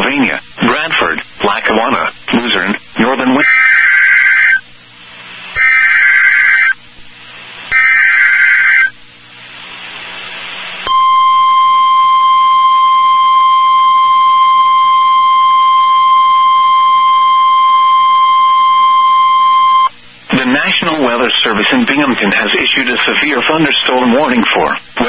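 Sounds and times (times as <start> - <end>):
digital data bursts: 2.4 - 4.6, 5.6 - 6.8, 7.7 - 8.9
steady warning alarm tone: 3.4 - 4.6, 5.6 - 6.8, 7.7 - 9.0, 10.9 - 19.9.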